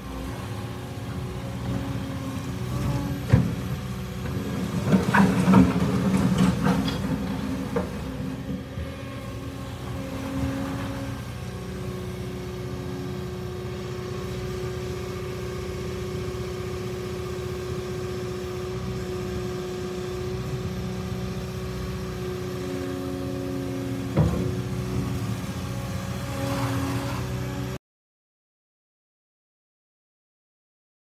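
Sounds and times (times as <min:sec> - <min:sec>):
loader diesel engine running: 0:00.0 - 0:27.8.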